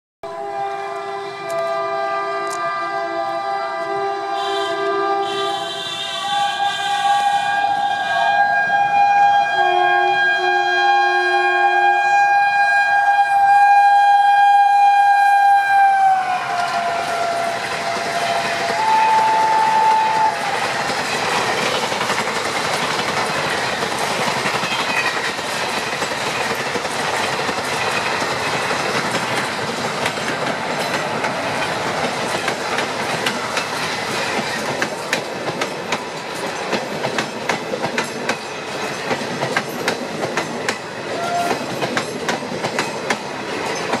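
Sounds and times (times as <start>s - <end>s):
train coaches rushing on track: 0.2s - 44.0s
wheels clacking over rail joints: 16.5s - 44.0s.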